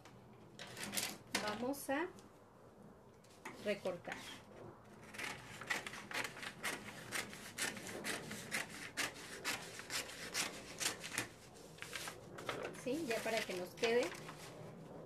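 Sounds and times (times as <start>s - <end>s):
scissors snipping paper: 5.0s - 12.1s, 12.9s - 14.3s.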